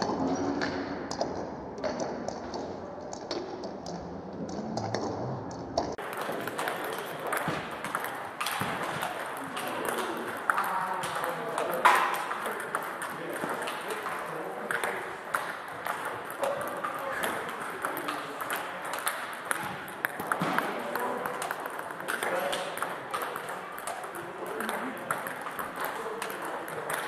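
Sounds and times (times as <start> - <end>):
table tennis balls clicking: 5.8 - 27.0.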